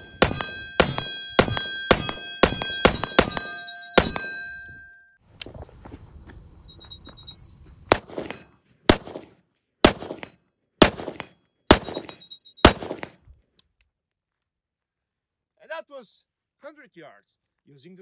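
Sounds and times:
rifle shots with echo: 0.0s - 4.4s, 7.9s - 13.2s.

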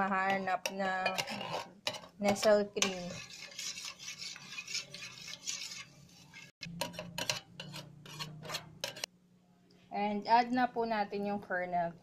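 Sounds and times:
utensil scraping a tin can: 0.0s - 9.1s.

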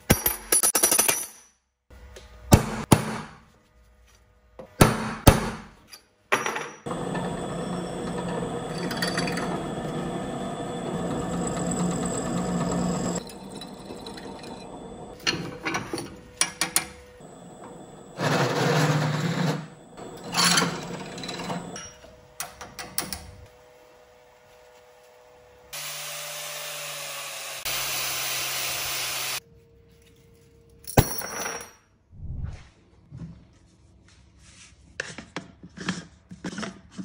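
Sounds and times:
drill press cutting metal: 6.9s - 16.0s, 17.2s - 21.9s.

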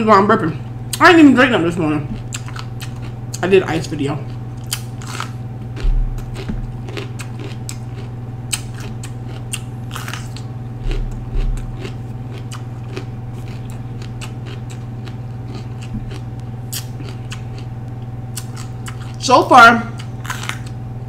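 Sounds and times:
steady low hum: 0.0s - 21.0s
crisp wet chewing crunches: 2.2s - 3.4s, 4.2s - 17.7s, 18.3s - 19.2s, 20.0s - 20.8s
low thumps: 5.7s - 7.2s, 10.7s - 12.1s.

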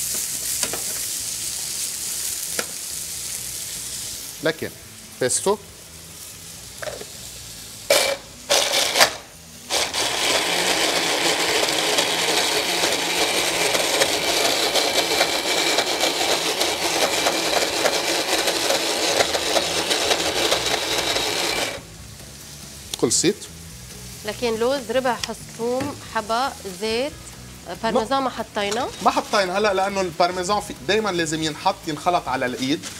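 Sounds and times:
hand blender motor running: 7.9s - 21.8s.

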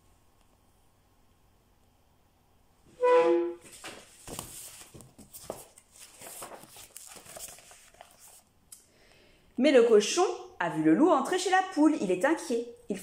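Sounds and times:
short loud pitched tone: 3.0s - 3.6s
book pages turning: 3.6s - 8.5s.

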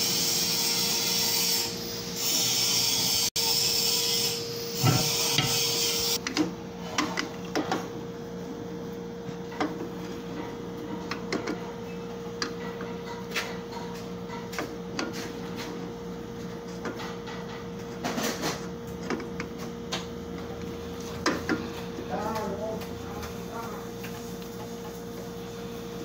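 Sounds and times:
metal scraping: 0.2s - 6.2s.

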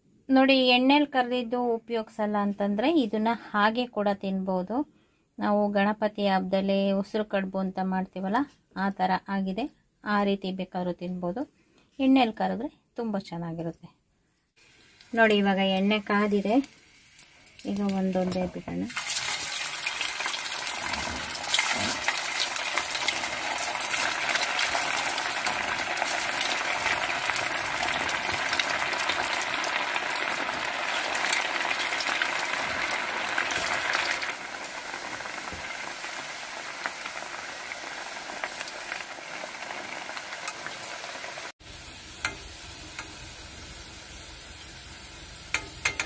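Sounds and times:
food deep-frying in oil: 14.6s - 46.0s.

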